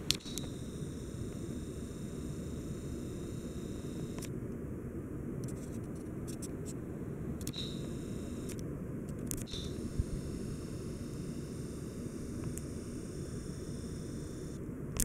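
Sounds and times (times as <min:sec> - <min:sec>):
ceiling fan humming: 0:00.0 - 0:15.0
faint light ticks: 0:12.4 - 0:12.7.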